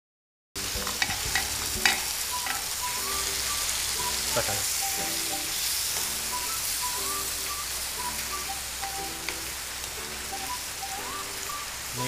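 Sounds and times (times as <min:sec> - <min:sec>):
chicken sizzling in pan: 0:00.6 - 0:12.0
metal spatula scraping pan: 0:00.9 - 0:02.8.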